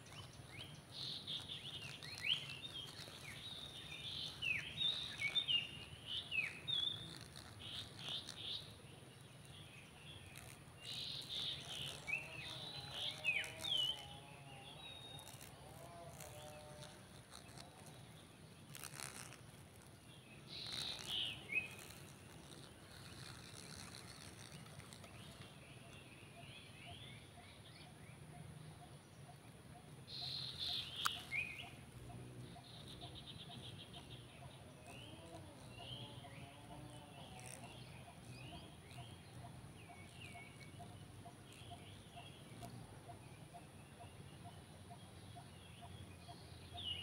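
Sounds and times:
short bird chirps: 0.0 - 8.8, 18.6 - 28.9, 30.1 - 43.8
plastic bag crinkling: 0.0 - 25.6, 30.2 - 31.7
insect buzz: 0.0 - 47.0.

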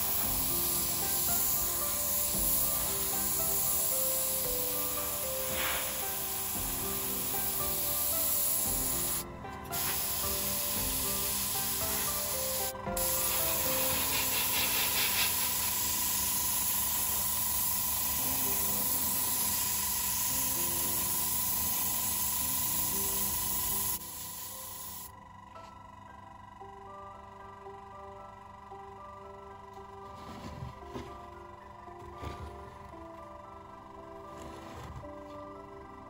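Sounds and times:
airbrush spraying hiss: 0.0 - 25.1
background music: 0.0 - 36.0.

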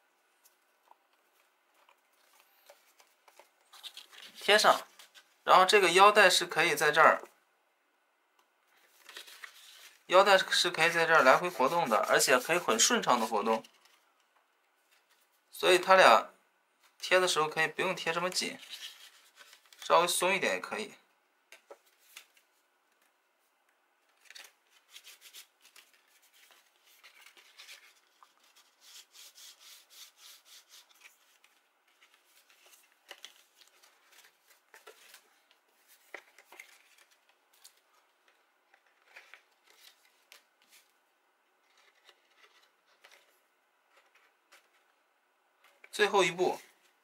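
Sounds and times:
cardstock rustling and rubbing: 1.2 - 5.4, 8.8 - 14.0, 18.3 - 19.8, 24.1 - 37.9, 41.6 - 44.9.

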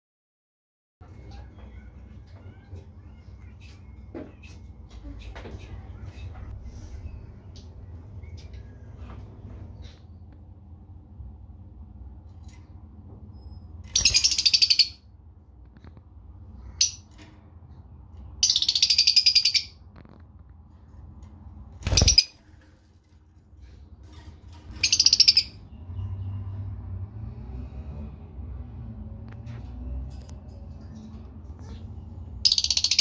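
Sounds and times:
bird chirp: 13.3 - 15.0, 18.2 - 19.9, 21.8 - 22.4, 31.6 - 33.0.

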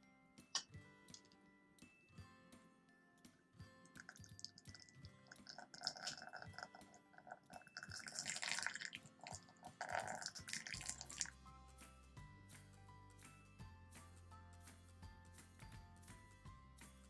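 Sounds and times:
water pouring into glass cup: 4.0 - 11.3.

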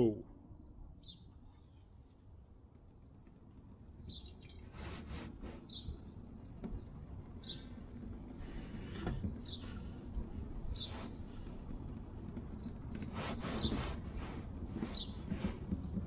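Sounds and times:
low wind rumble: 0.0 - 16.0
bird chirping: 0.9 - 2.2, 4.0 - 16.0.

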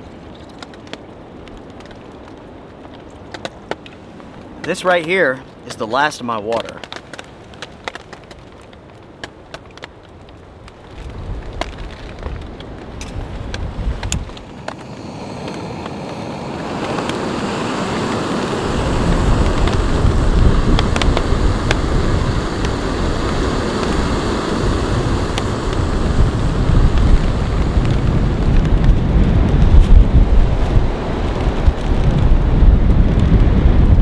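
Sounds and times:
wind gusts buffeting microphone: 10.5 - 34.0.

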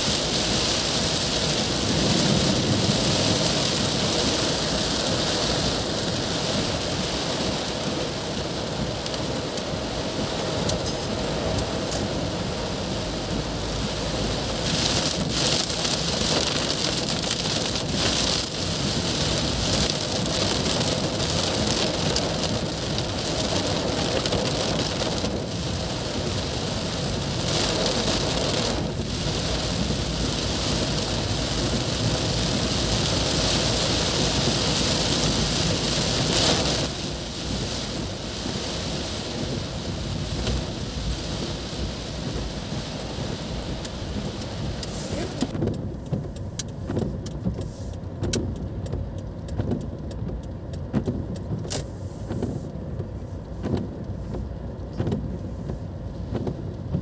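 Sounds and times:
heavy rain on car roof: 0.0 - 57.0.

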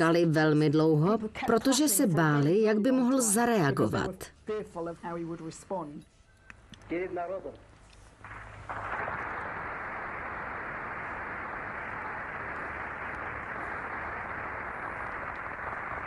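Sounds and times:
audience applause: 8.2 - 16.0.

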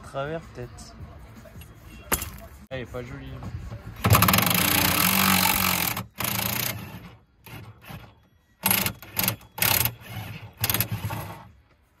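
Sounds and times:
power wrench bursts: 4.1 - 11.5.

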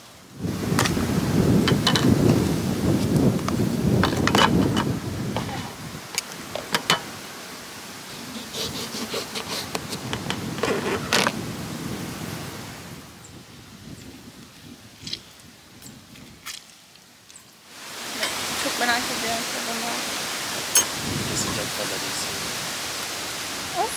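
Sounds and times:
wind rumbling on microphone: 0.0 - 23.9
knife cutting lemon: 8.4 - 10.1.

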